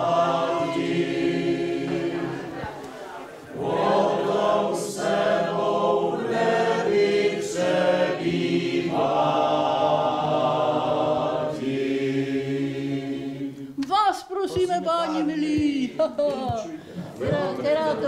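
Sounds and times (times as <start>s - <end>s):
group of voices singing: 0.0s - 13.8s.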